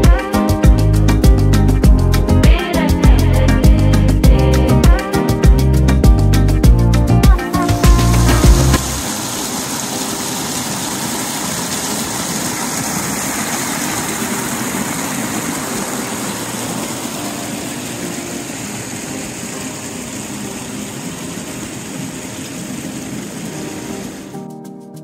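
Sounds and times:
creek rushing over rocks: 7.5 - 24.4.

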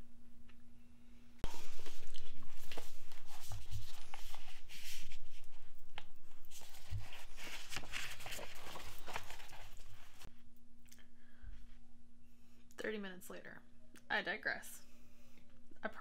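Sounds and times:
book pages rustling: 1.4 - 10.3.

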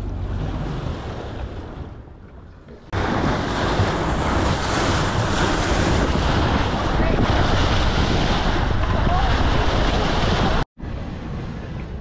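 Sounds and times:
boat wake rushing and splashing: 0.0 - 12.0
wind and sea noise: 0.0 - 12.0
wind on microphone: 3.0 - 12.0.

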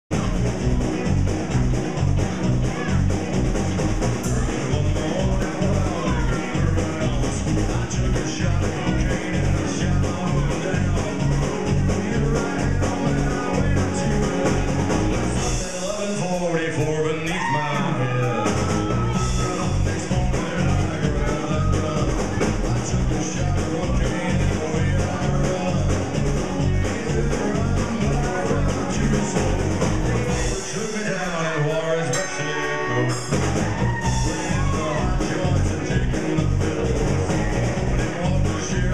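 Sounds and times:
electric guitar: 0.1 - 16.2, 16.8 - 38.9
drum kit beat with cymbals: 0.1 - 38.9
live rock band: 0.1 - 38.9.

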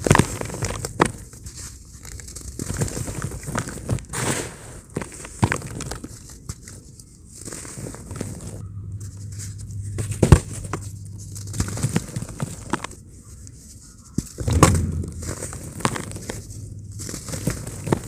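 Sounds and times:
cement lumps crunching and crackling: 0.0 - 18.0
pieces pattering into cement powder: 0.0 - 18.0
loud impacts: 14.4 - 18.0.

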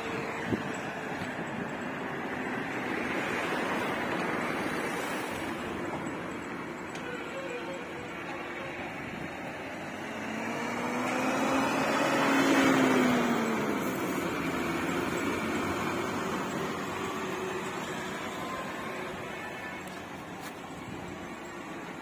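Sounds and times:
diesel truck driving past: 0.0 - 22.0.

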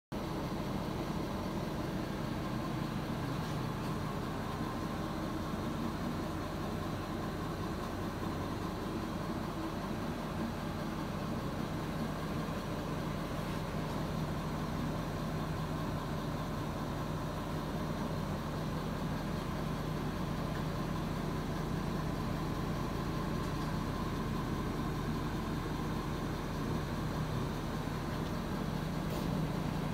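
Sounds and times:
steady machine hum: 0.2 - 29.9.

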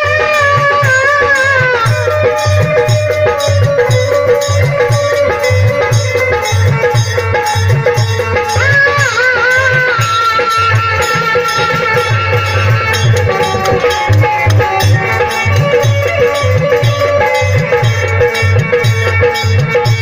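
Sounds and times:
electronic keyboard melody: 0.0 - 20.0
hand drum beat: 0.0 - 20.0
small hand cymbals striking: 0.0 - 20.0.

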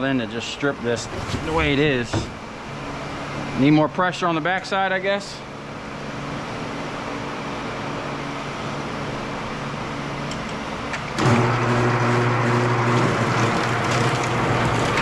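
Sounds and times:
wire stripping machine humming: 10.2 - 15.0.

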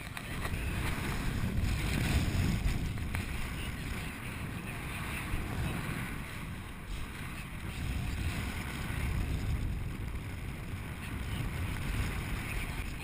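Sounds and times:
wind rushing over microphone: 0.0 - 13.0.

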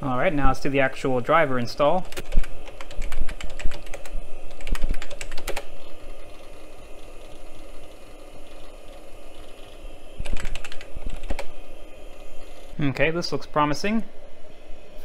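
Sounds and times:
steady low hum: 0.0 - 15.0
typing on computer keyboard: 2.0 - 5.7, 10.2 - 11.5.

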